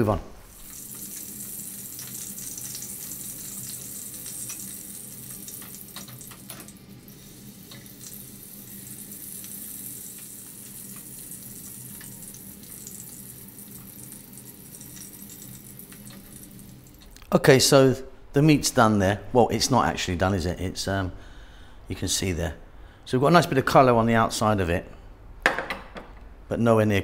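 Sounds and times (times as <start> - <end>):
meat sizzling in oil: 0.5 - 17.2
oil crackles: 0.5 - 17.3.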